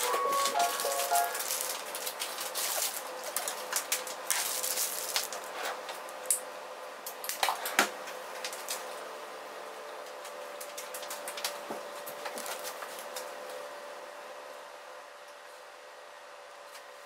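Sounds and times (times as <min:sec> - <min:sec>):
plastic piping bag crinkling: 0:00.0 - 0:05.4.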